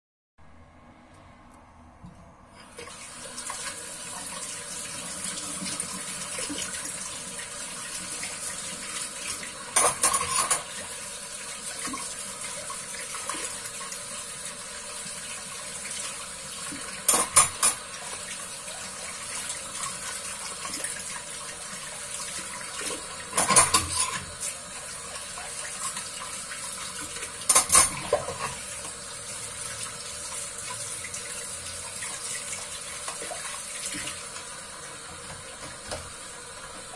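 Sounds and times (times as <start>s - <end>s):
dishes clattering: 9.7s - 10.8s, 17.0s - 17.9s, 22.9s - 24.3s, 27.1s - 28.7s
tap running into sink: 35.1s - 36.2s.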